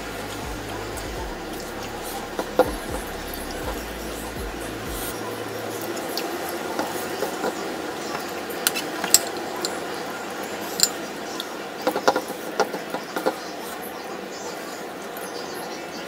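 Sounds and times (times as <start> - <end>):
spoon clinking against dishes: 5.8 - 13.2.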